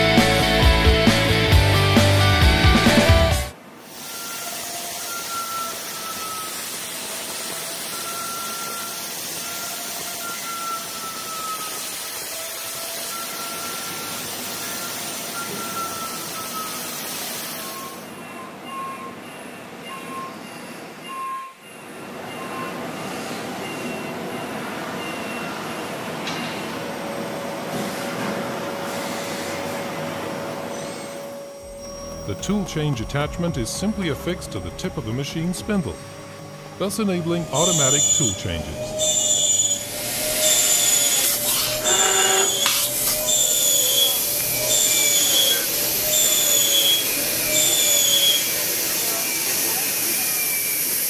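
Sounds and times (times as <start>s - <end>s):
mid-pitched whine: 30.7s - 49.2s
spindle cutting metal hiss: 36.9s - 51.0s.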